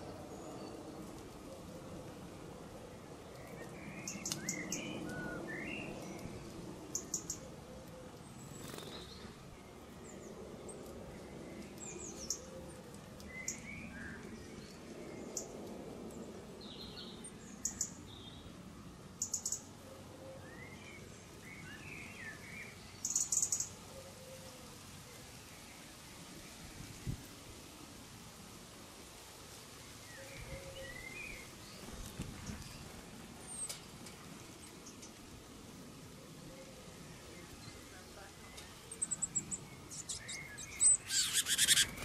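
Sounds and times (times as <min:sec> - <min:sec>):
soft lower bird twittering: 0:36.6 - 0:42.0
high bird chirps: 0:39.0 - 0:42.0.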